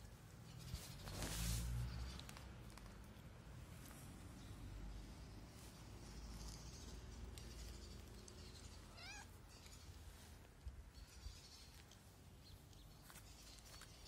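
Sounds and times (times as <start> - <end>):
cat meowing: 8.9 - 9.4.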